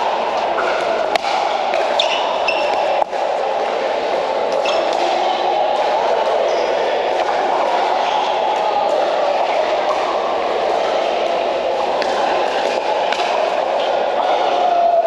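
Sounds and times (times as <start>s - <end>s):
indoor hall din: 0.0s - 15.0s
paddles hitting plastic ball: 0.6s - 3.3s.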